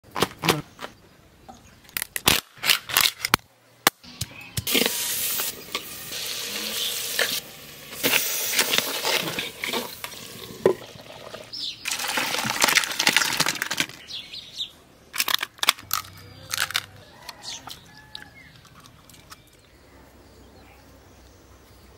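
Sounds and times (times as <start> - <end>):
curry sizzling in a pot: 4.7 - 12.2.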